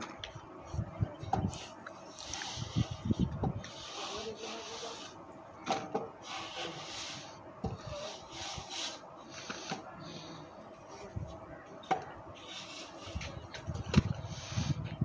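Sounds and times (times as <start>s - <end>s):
straightedge scraping plaster: 3.6s - 5.2s, 6.2s - 9.8s.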